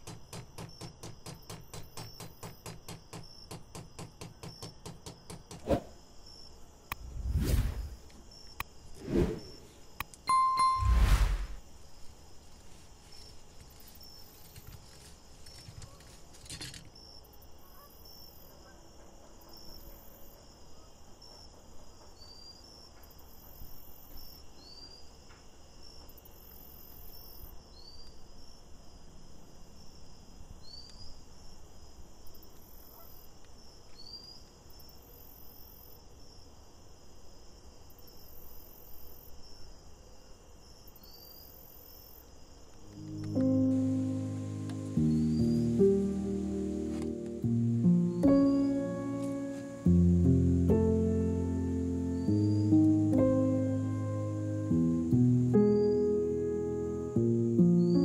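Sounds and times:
faint high-pitched chirping squeaks: 12.6 - 25.2, 32.3 - 35.9, 40.8 - 46.3, 48.0 - 49.9
steady low hiss: 42.6 - 58.0.

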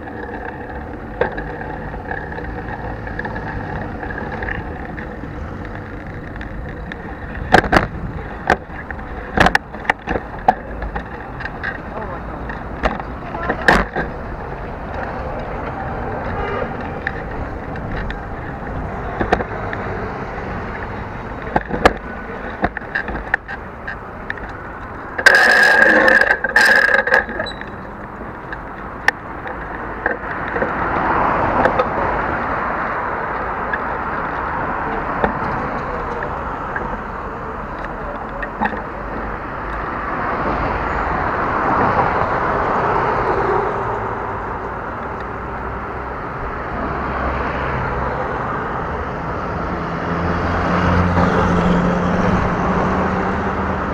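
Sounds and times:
knocks and rattles from bumps: 0.0 - 20.0
bicycle ride rumble and hiss: 0.0 - 53.9
street traffic: 0.0 - 53.9.

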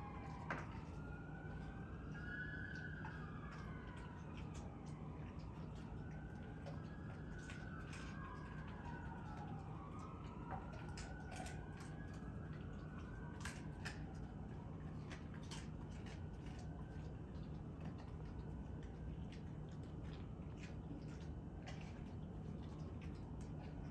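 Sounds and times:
faint siren wailing: 0.0 - 23.9
dog jaws clicking and snapping: 12.8 - 14.4.

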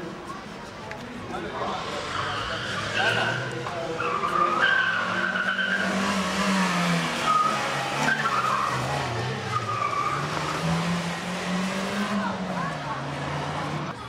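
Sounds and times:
tyres squealing on tarmac: 1.6 - 11.1
car engine revving: 1.6 - 14.0.

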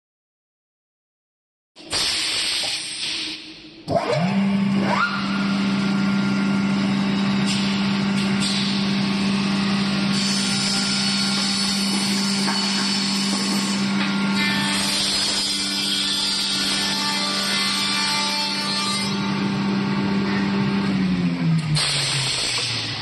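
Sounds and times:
high-pitched whir: 3.8 - 8.8
electric motors humming: 19.1 - 21.8.

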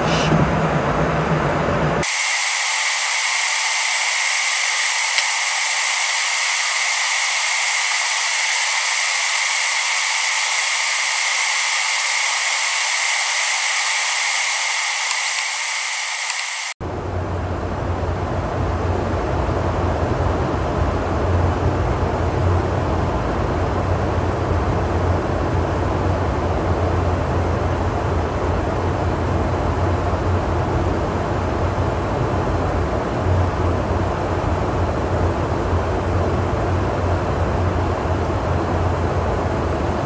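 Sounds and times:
deep aircraft cabin drone: 0.0 - 40.0
steady high hiss: 2.0 - 16.8.

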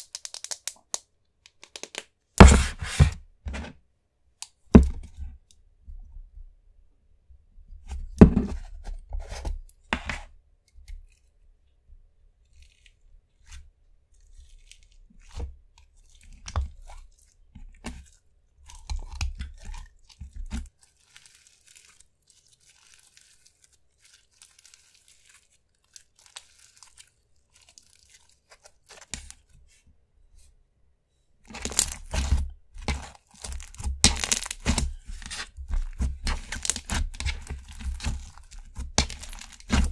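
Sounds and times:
slime squishing and crackling: 0.0 - 1.0, 14.2 - 29.5, 31.5 - 39.9.

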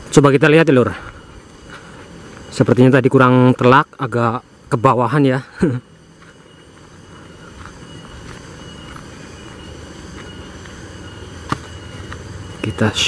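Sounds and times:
footsteps rustling through plants: 0.0 - 3.0, 6.0 - 13.0
high insect tone: 0.0 - 13.0.

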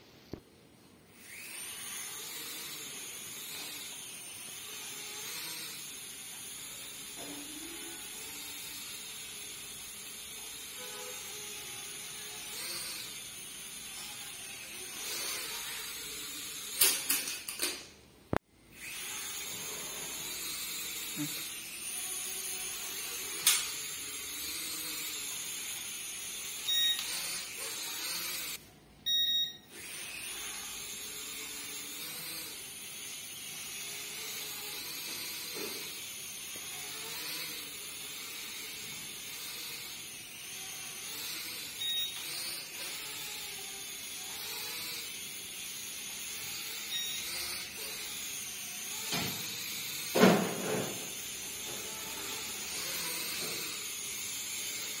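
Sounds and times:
toy drone motors whining: 1.1 - 17.8, 18.7 - 55.0
short beeps: 26.7 - 27.1, 29.1 - 29.7.

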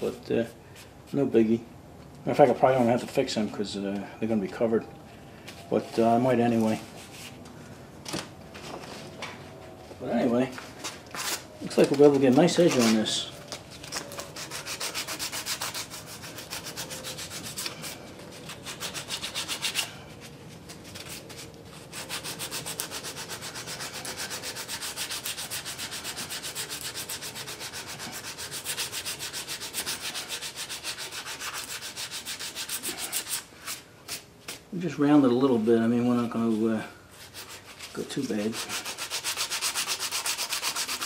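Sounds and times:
sandpaper rasping on metal: 12.1 - 13.3, 14.2 - 20.0, 20.9 - 33.8, 37.2 - 41.0.

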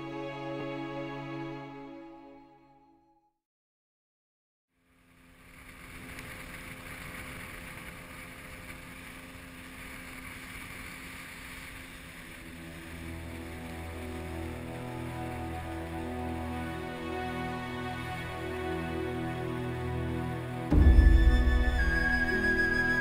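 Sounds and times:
music: 0.0 - 3.4, 12.5 - 23.0
motorboat running: 5.2 - 23.0.

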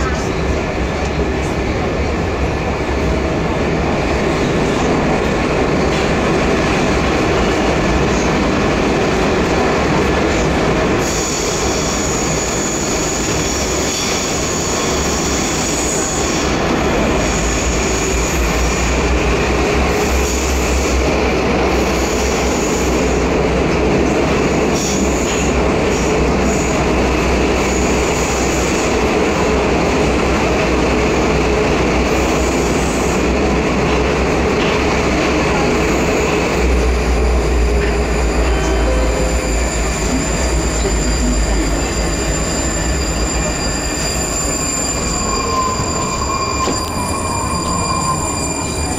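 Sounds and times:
train wheels rumbling: 0.0 - 48.9
high wheel squeal: 11.0 - 19.0, 37.2 - 48.9.

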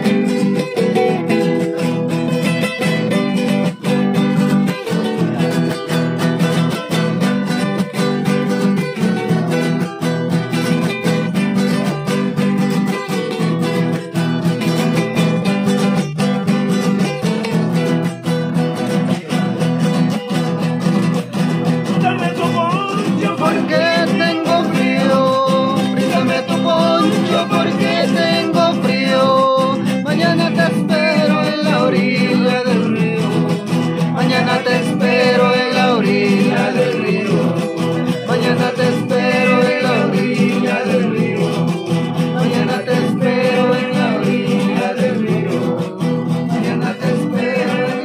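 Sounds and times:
acoustic guitars strumming: 0.0 - 48.0
man singing: 18.7 - 48.0.

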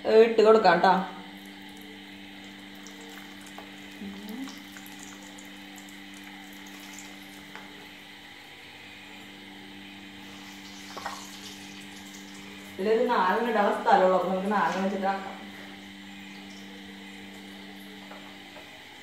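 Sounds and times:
patties sizzling in hot oil: 1.2 - 8.5, 9.4 - 13.7.

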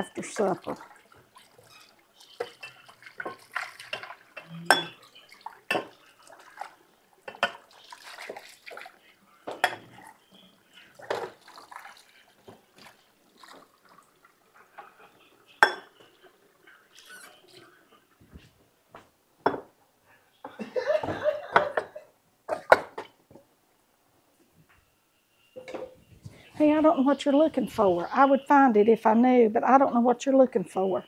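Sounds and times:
water splashing in sink: 0.2 - 9.1, 10.8 - 17.6.

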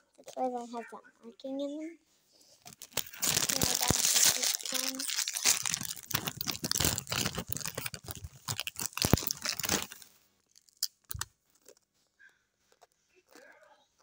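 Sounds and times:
chip bag crinkling: 2.7 - 11.9.

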